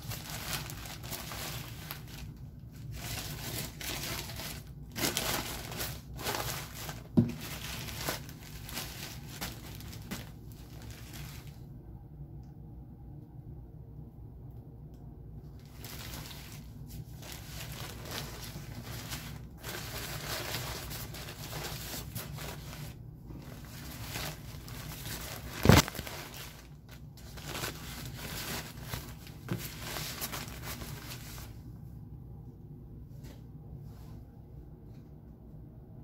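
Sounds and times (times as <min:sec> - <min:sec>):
plastic crinkling: 0:00.0 - 0:11.6, 0:15.6 - 0:31.6.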